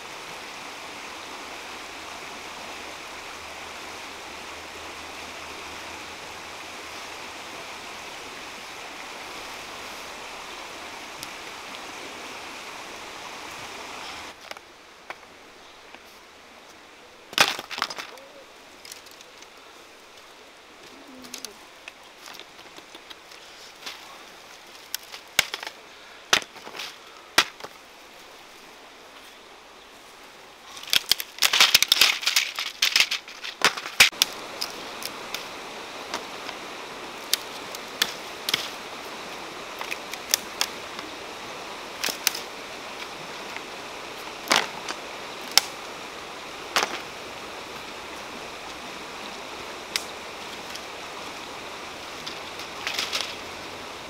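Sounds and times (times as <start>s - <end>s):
branches crackling and leaves rustling: 0.0s - 54.0s
twigs snapping: 17.3s - 19.5s, 20.8s - 27.8s, 30.7s - 35.5s, 37.2s - 38.8s, 39.7s - 41.1s, 42.0s - 43.7s, 44.4s - 45.8s, 46.7s - 47.1s, 49.9s - 50.9s, 52.2s - 53.4s.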